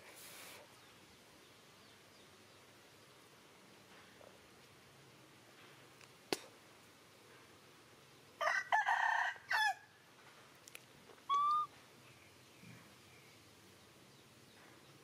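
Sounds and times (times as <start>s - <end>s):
rooster crowing: 8.4s - 9.9s.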